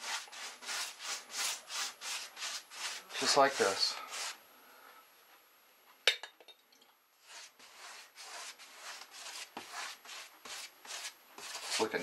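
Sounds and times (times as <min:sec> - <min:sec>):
paintbrush scrubbing strokes: 0:00.0 - 0:04.4, 0:07.2 - 0:12.0.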